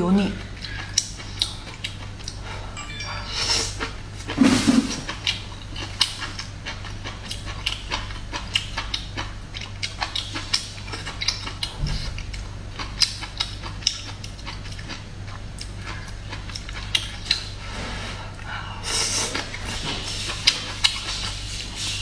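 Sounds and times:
low steady hum: 0:00.0 - 0:22.0
chewing crunches: 0:00.6 - 0:02.6, 0:03.6 - 0:17.6.

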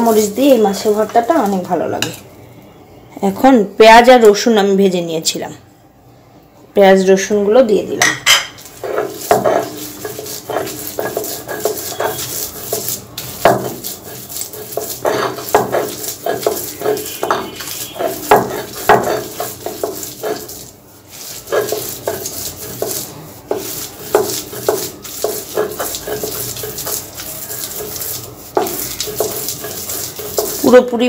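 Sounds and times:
stone roller scraping on grinding stone: 0:00.0 - 0:02.2, 0:08.6 - 0:31.0.

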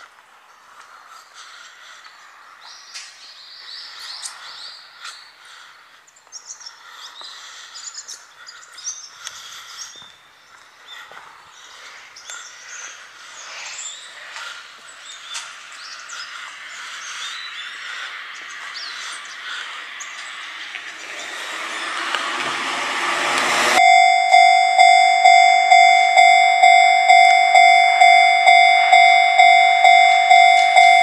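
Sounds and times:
rushing noise: 0:16.7 - 0:31.0
level crossing bell ringing: 0:23.8 - 0:31.0.

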